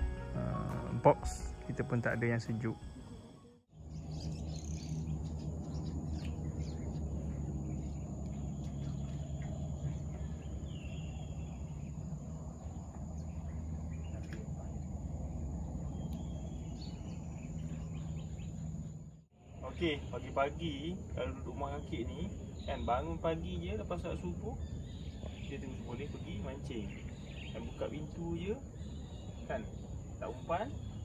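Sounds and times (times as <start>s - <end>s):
steady low hum: 0.0s - 31.0s
faint bird chirps: 12.6s - 31.0s.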